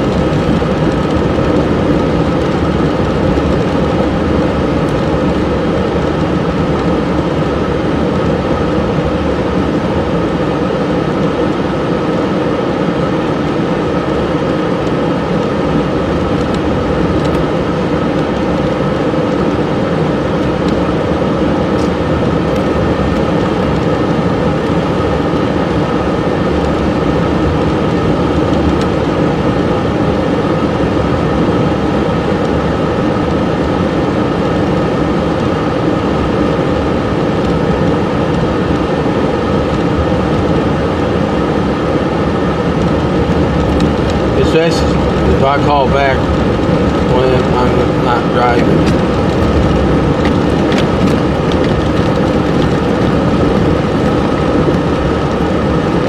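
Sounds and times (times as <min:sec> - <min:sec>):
car engine: 0:00.0 - 0:56.0
tyres on snowy road: 0:11.8 - 0:56.0.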